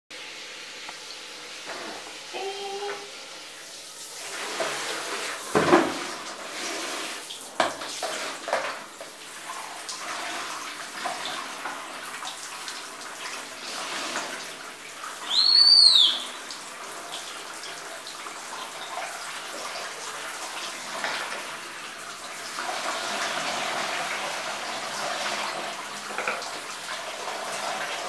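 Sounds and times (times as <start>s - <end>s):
shower water splashing: 0.2s - 28.0s
dog squealing: 15.3s - 16.3s.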